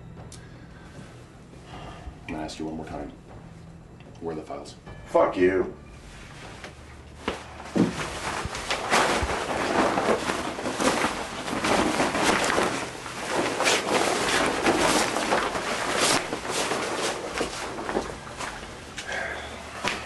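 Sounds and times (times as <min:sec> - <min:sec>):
clothing rustling: 0:05.9 - 0:20.0
bodies knocking together: 0:06.5 - 0:19.1.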